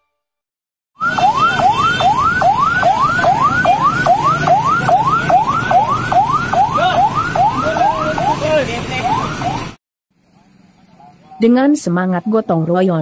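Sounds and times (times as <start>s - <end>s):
electronic siren yelping: 1.0s - 9.8s
low vehicle rumble: 1.0s - 13.0s.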